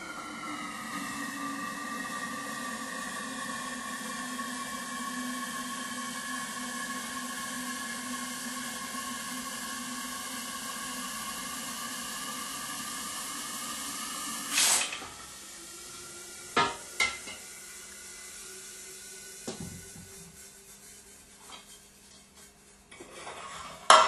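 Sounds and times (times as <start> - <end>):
hissing venting nitrogen: 0.0 - 22.8
spray rush: 14.5 - 15.0.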